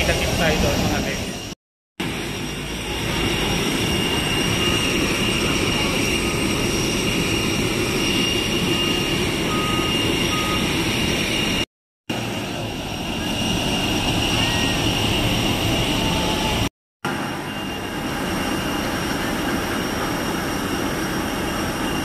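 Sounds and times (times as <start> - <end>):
jet aircraft whine: 0.0 - 22.0.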